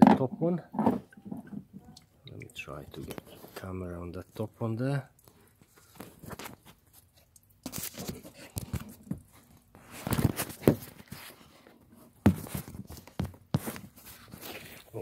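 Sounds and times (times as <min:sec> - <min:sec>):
handling knocks clicks and scrapes: 0:00.0 - 0:01.9, 0:05.2 - 0:15.0.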